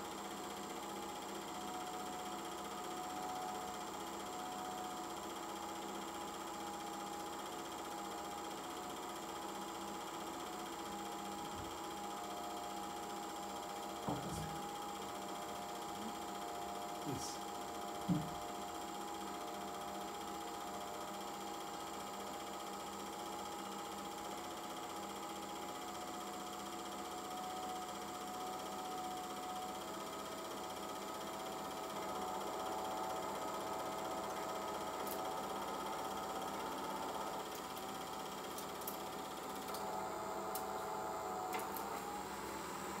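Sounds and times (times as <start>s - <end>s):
film projector running: 0.0s - 43.0s.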